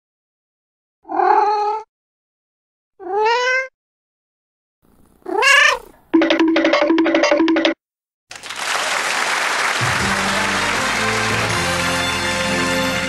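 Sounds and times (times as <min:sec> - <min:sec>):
cat meowing: 0:01.1 - 0:01.9, 0:03.0 - 0:03.7, 0:05.2 - 0:06.0.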